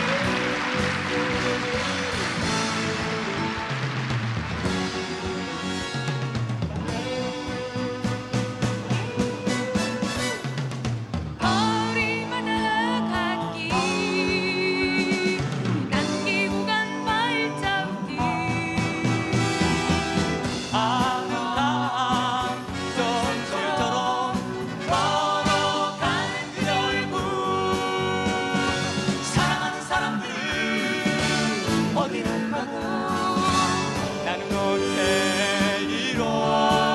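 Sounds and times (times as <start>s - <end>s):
acoustic guitar: 0.0s - 36.9s
backing band: 0.0s - 36.9s
woman singing: 11.4s - 19.9s
man singing: 20.6s - 36.9s.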